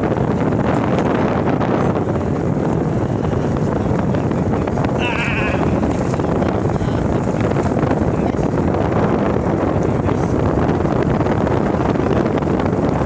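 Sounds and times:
wind buffeting: 0.0s - 13.0s
animal bleat: 5.0s - 5.9s.

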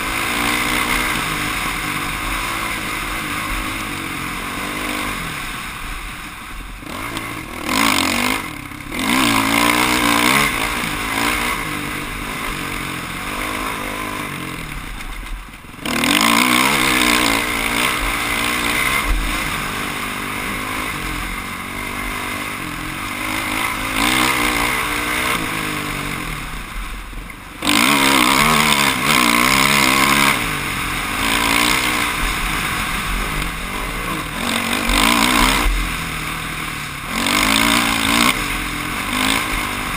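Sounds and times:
dirt bike engine revving: 0.0s - 39.9s.

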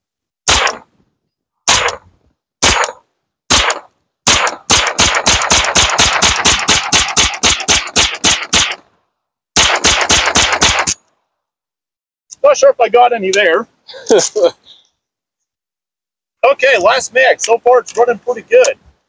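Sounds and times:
gunshots: 0.5s - 0.9s, 1.7s - 8.8s, 9.6s - 11.0s.

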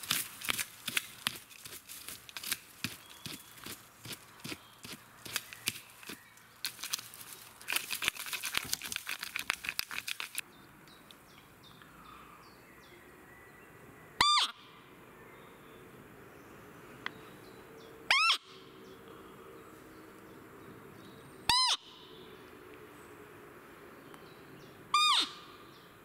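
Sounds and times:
crackling and rustling on forest floor: 0.0s - 11.3s
high squeak of deer call: 14.2s - 14.5s, 18.1s - 18.5s, 21.5s - 21.8s, 24.9s - 25.5s.

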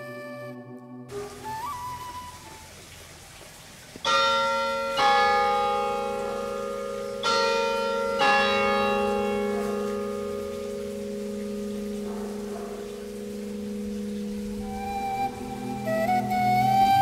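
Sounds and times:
church bells ringing: 4.0s - 14.7s.

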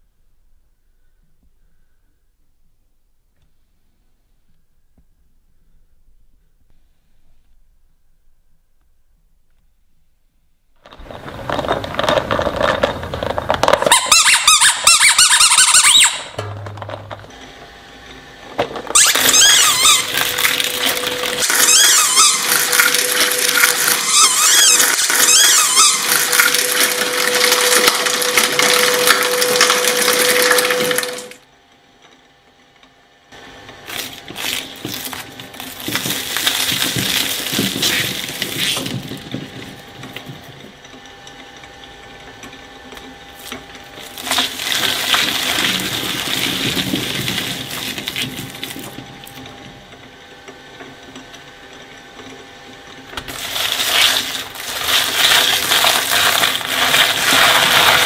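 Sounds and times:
shredder crunching vegetables: 10.8s - 31.5s, 33.4s - 58.0s
shredder grinding with squeals: 10.8s - 31.5s, 33.4s - 58.0s.

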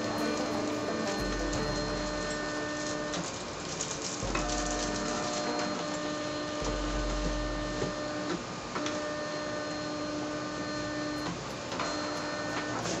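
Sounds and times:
low hum: 0.0s - 8.8s
stepper motors whirring: 0.0s - 9.0s.

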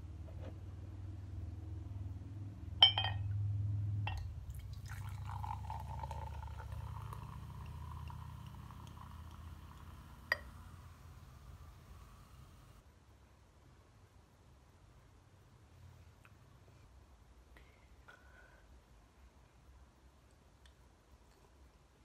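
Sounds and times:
glass clink: 2.8s - 3.4s, 4.1s - 4.3s, 10.3s - 10.6s
fizzy drink pouring: 4.1s - 12.8s.

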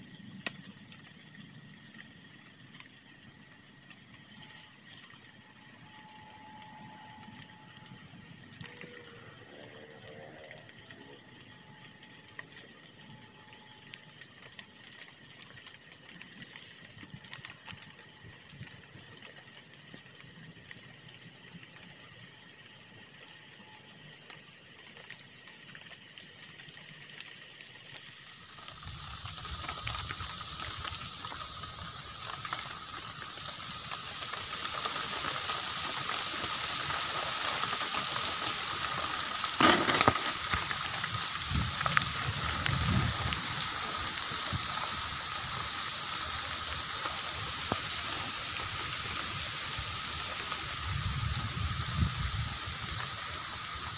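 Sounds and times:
grass fire hissing and crackling: 0.0s - 53.9s.

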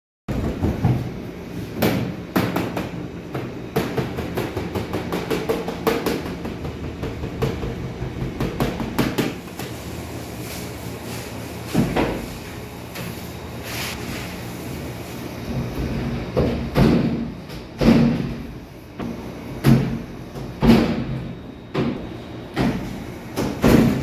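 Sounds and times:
steady machine hum: 0.3s - 24.0s.

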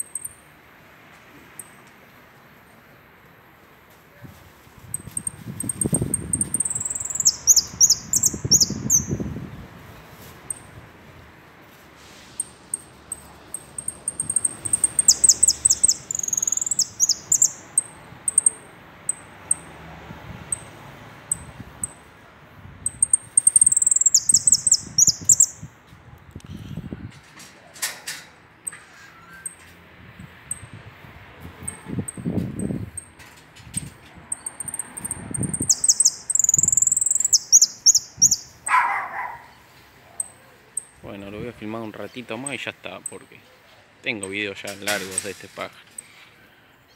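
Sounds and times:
finch singing: 5.0s - 9.3s, 12.4s - 19.6s, 22.9s - 25.7s, 34.3s - 39.5s.

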